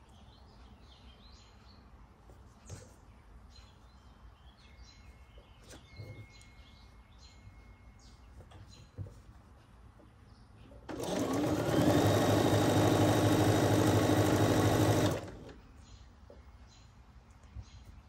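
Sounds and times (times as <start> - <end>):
bird chirping: 0.0 - 9.3, 15.6 - 18.0.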